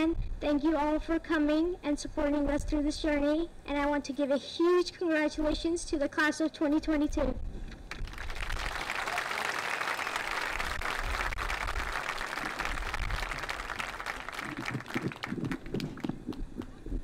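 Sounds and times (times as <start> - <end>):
audience applauding: 7.9 - 16.3.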